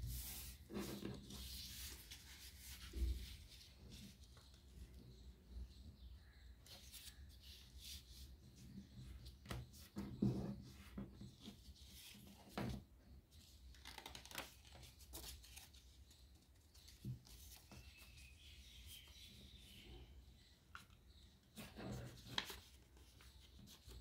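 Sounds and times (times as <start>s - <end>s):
paper rustling and creasing: 13.6s - 18.2s, 20.7s - 24.0s.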